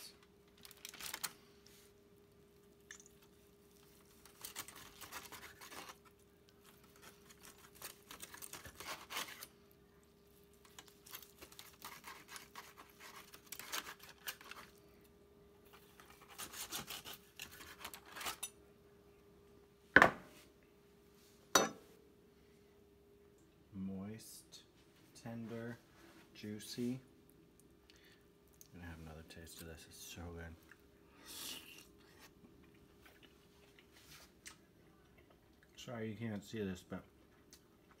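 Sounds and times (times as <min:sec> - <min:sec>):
aluminium foil crinkling: 0:00.0 - 0:01.8, 0:02.6 - 0:09.7, 0:10.3 - 0:15.0, 0:15.7 - 0:18.5
knife sawing through roast: 0:08.5 - 0:09.5, 0:11.5 - 0:14.6, 0:16.2 - 0:18.4.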